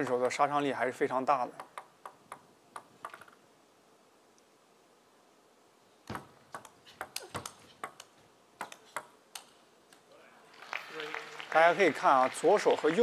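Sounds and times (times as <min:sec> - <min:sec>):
table tennis ball clicks: 0:01.5 - 0:03.4, 0:06.1 - 0:10.0.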